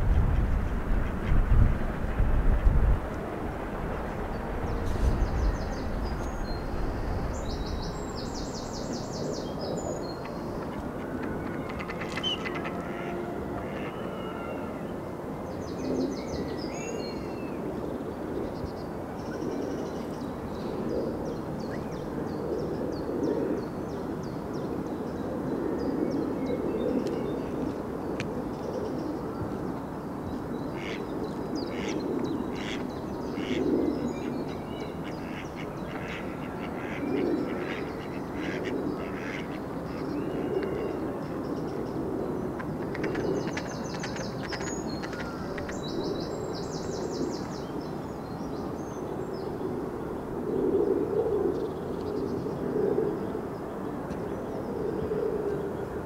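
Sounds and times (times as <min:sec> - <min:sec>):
steady background rush: 0:00.0 - 0:23.6
ducks quacking: 0:11.7 - 0:14.0, 0:31.7 - 0:32.8, 0:35.0 - 0:39.6.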